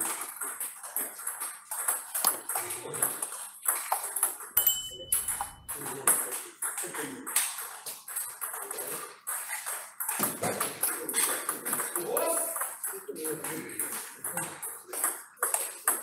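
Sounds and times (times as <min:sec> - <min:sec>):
table tennis ball clicking: 0:00.4 - 0:12.9
short high beep: 0:04.6 - 0:05.7.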